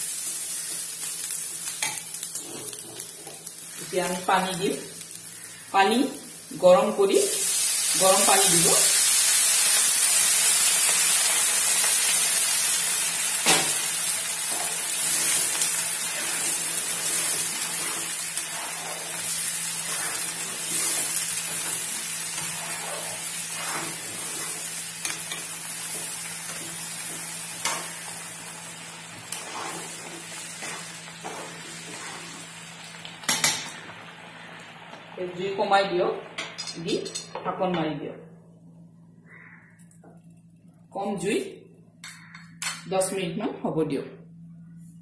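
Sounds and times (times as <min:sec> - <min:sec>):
water sizzling in hot pan: 0:00.0 - 0:35.7.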